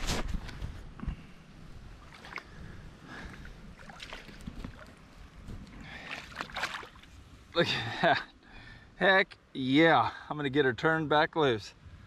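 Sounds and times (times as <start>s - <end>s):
wind rumble on microphone: 0.0s - 6.1s
water sloshing: 1.9s - 7.2s.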